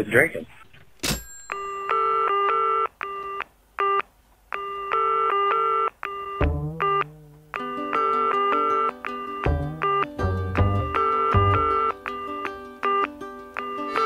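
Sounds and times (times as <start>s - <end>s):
pulsing telephone tones: 4.6s - 14.0s.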